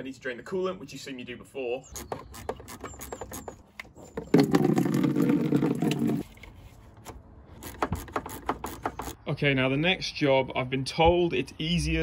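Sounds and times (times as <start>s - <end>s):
liquid pouring into plastic bucket: 4.4s - 6.2s.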